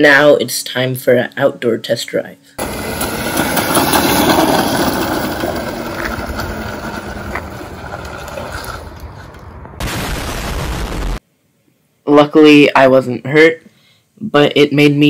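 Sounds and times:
electric go-kart rolling on asphalt: 2.6 - 9.8
explosion sound effect: 7.7 - 11.2.

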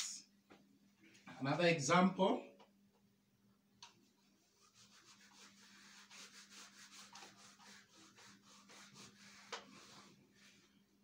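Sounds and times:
eraser rubbing on whiteboard: 4.4 - 10.7.

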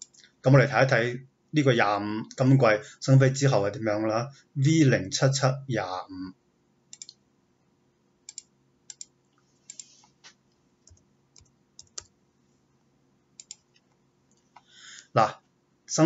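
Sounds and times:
keyboard and mouse clicks: 0.0 - 0.2, 6.9 - 7.2, 8.3 - 9.1, 9.7 - 12.1, 13.4 - 14.7.

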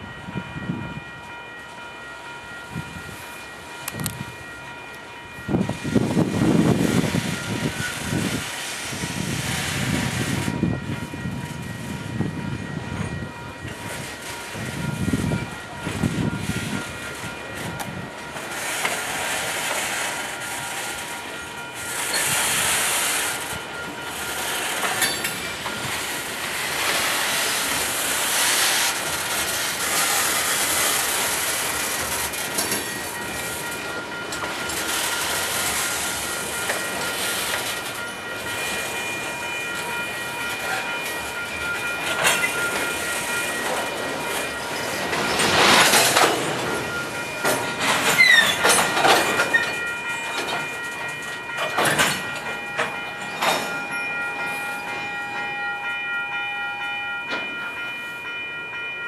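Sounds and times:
steel wheels clattering on rails: 3.4 - 58.9
freight cars rolling: 12.9 - 59.0.

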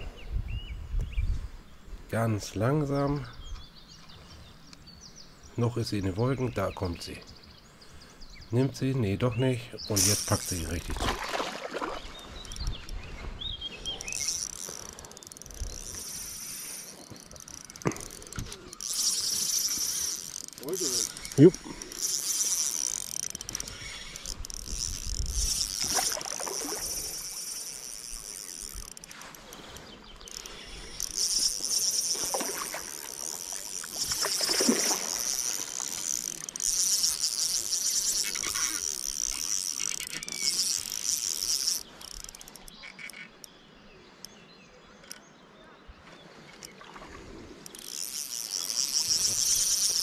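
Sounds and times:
fishing reel whirring and clicking: 9.9 - 13.0, 13.8 - 43.5, 46.5 - 50.0.

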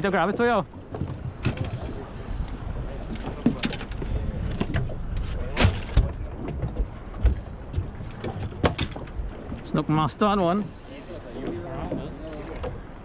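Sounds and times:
knocks and clatter of handling: 0.8 - 2.0, 3.0 - 4.9, 5.5 - 9.3.

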